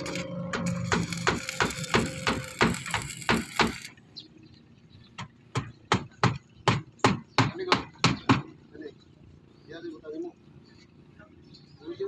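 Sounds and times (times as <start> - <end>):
arc welder hissing: 0.0 - 4.0
hammer blows on formwork: 0.5 - 3.9.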